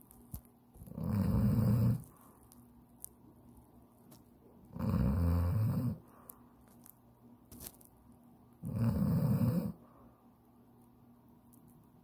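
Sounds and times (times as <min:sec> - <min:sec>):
man snoring: 0:00.9 - 0:02.0, 0:04.8 - 0:06.0, 0:08.6 - 0:09.8.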